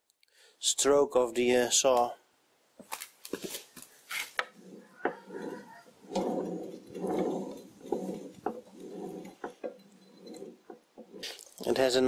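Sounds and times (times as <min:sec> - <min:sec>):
dry metal scraping and rubbing: 0:03.4 - 0:12.0.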